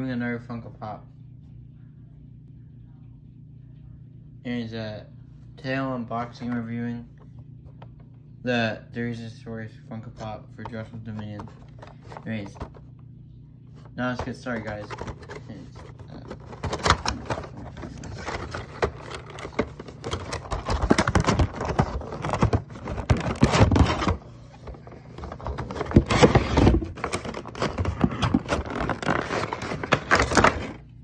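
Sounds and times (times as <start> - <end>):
packaging scraping and rustling: 11.2 - 12.8, 14.2 - 30.8.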